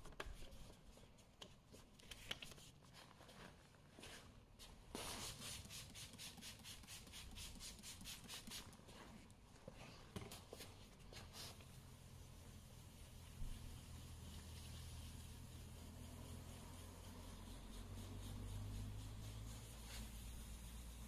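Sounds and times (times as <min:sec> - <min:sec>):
spray bottle spraying: 0:05.0 - 0:08.8, 0:12.9 - 0:21.0.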